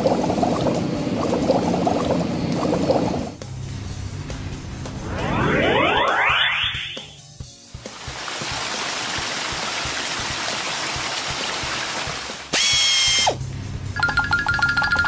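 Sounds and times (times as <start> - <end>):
cartoon water jets hissing: 12.3 - 13.4.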